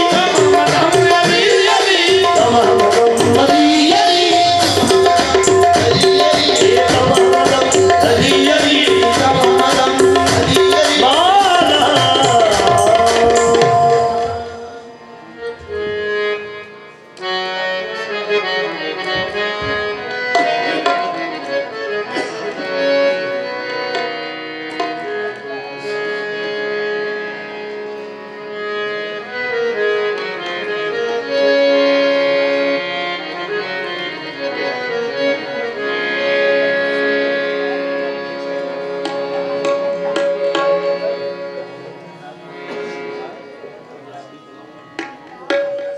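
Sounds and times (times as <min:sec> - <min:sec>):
tabla strokes: 0:00.0 - 0:14.8, 0:39.0 - 0:41.4, 0:44.9 - 0:45.9
harmoniums: 0:00.0 - 0:45.9.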